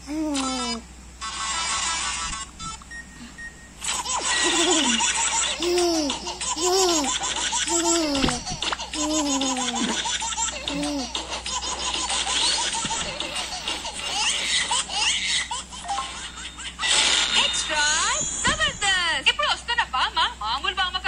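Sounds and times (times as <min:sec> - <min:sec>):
baby laughing: 0:03.9 - 0:16.5.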